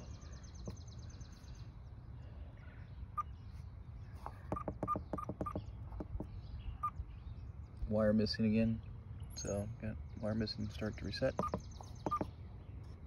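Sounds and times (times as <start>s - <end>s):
keypad beeps: 4.6s - 5.6s.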